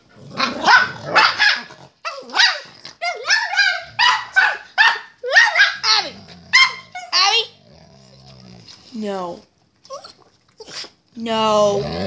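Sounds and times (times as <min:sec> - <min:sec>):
dog barking high-pitched: 0:00.4 - 0:07.4.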